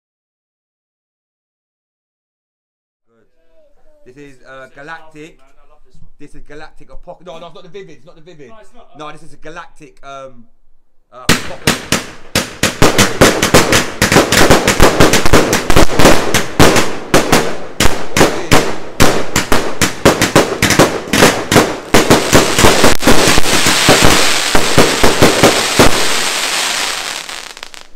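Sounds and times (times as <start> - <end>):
firework bangs: 11.3 - 27.9
firework crackling hiss: 11.5 - 27.9.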